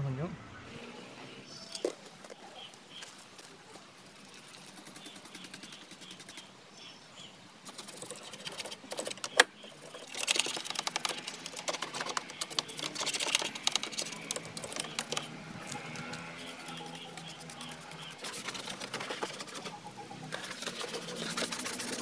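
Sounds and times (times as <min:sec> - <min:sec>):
toothbrush scrubbing plastic: 0:09.8 - 0:22.0.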